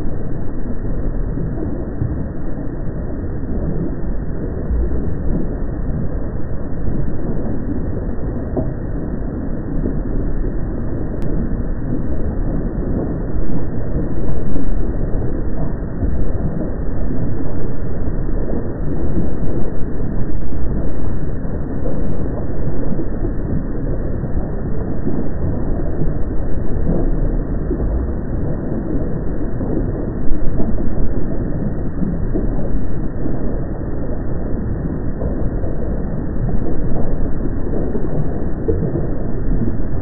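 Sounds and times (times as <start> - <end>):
deep volcanic rumbling: 0.0 - 40.0.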